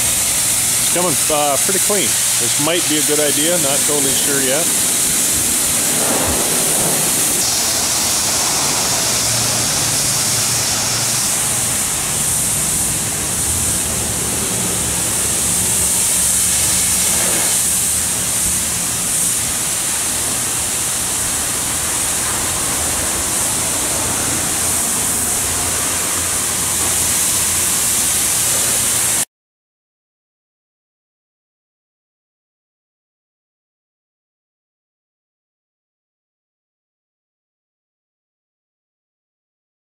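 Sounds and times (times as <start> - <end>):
high-pressure water spraying: 0.0 - 29.3.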